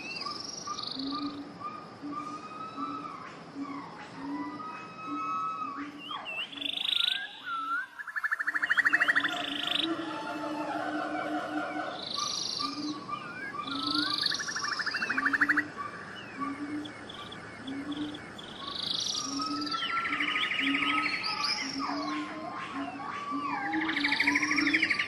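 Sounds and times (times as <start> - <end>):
bird-like chirps whistles and trills: 0.0 - 25.0
low croaking notes: 13.7 - 20.8.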